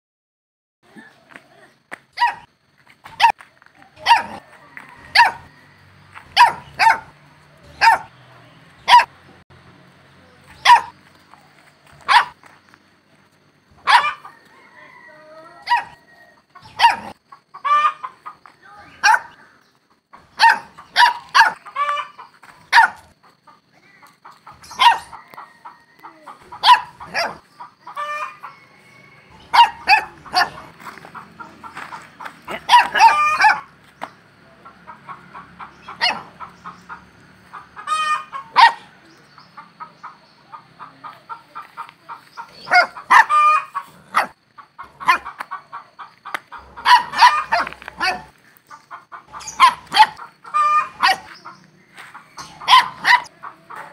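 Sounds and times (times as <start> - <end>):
puppy yelping and whining: 49.4 - 51.3.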